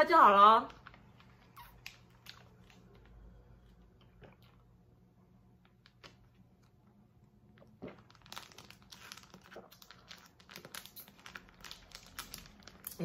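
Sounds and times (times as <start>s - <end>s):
foil pouch crinkling: 7.8s - 13.0s.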